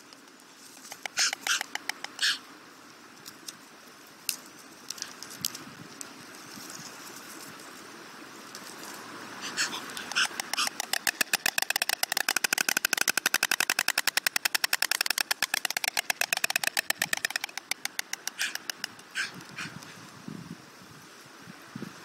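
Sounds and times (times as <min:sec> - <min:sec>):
storks clattering bills: 0:00.9 - 0:02.4, 0:10.0 - 0:19.4.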